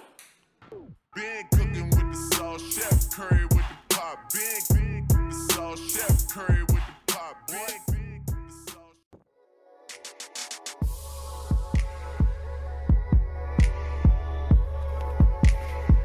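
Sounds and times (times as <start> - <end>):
rapping over a beat: 1.2 - 9.0
sharp hi-hats: 1.6 - 7.9.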